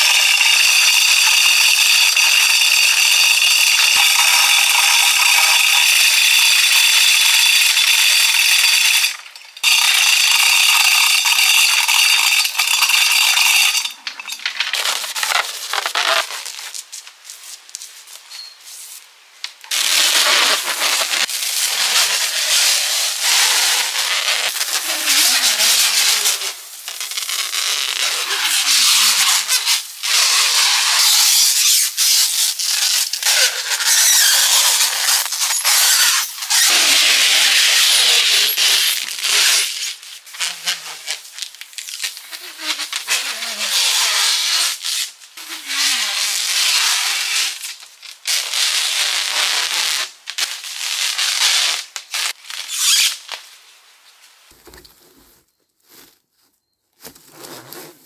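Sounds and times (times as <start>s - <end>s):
rubbing and crinkling: 13.1s - 19.1s, 54.3s - 58.0s.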